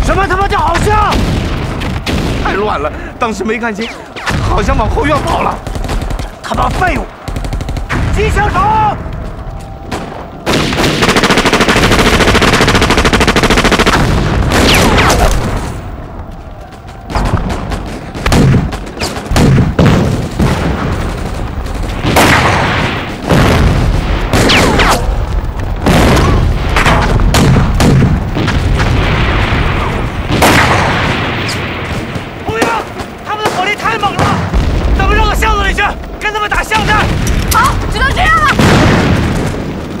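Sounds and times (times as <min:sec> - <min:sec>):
loud explosions: 0:00.0 - 0:40.0
scattered gunfire: 0:03.8 - 0:09.0, 0:09.9 - 0:15.8, 0:16.6 - 0:25.2, 0:25.8 - 0:40.0
machine-gun burst: 0:05.2 - 0:08.2, 0:10.5 - 0:15.7.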